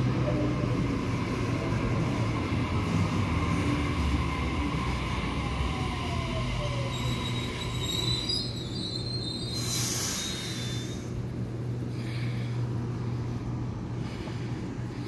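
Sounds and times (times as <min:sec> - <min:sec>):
high wheel squeal: 0:06.6 - 0:11.0.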